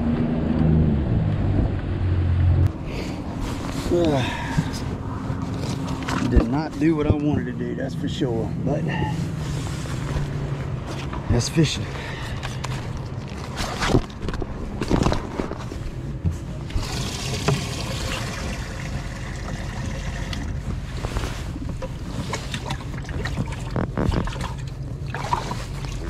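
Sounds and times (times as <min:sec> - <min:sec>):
gear rustling and knocking: 0:03.3 - 0:07.7, 0:12.3 - 0:17.7, 0:18.3 - 0:26.0
water splashing and trickling: 0:16.8 - 0:20.7, 0:21.8 - 0:26.0.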